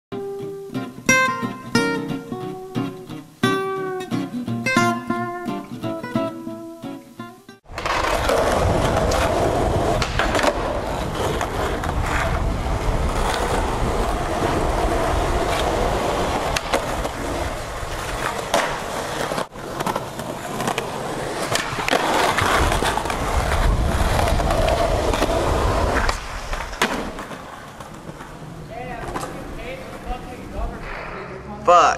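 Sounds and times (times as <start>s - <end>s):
skateboard wheels rolling on concrete: 0.2s - 31.7s
skateboard clacking: 7.6s - 31.3s
skateboard grinding on ledge: 7.7s - 31.0s.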